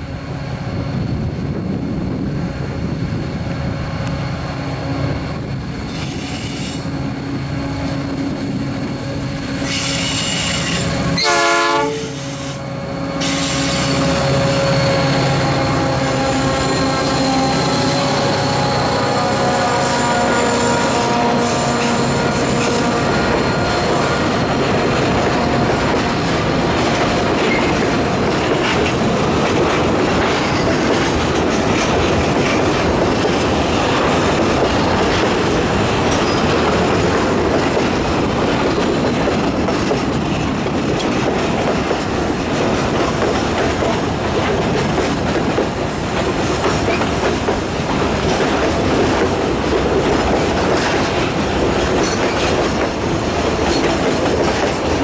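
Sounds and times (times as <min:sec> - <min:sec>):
train wheels rumbling on rail: 0:00.0 - 0:55.0
clickety-clack over rail joints: 0:21.7 - 0:55.0.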